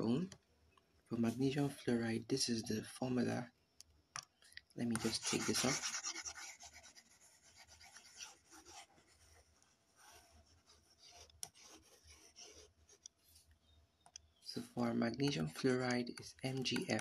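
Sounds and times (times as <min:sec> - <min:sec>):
rubbing on a touchscreen: 0:04.8 - 0:13.5.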